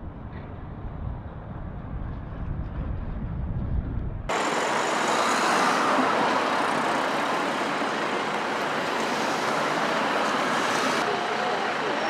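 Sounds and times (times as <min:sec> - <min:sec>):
buses driving by: 0:04.3 - 0:12.0
traffic noise from tyres and engines: 0:04.3 - 0:12.0.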